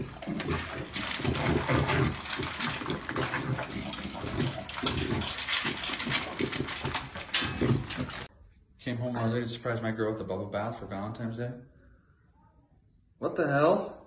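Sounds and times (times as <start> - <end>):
dog crunching kibble in metal bowl: 0.0 - 8.3.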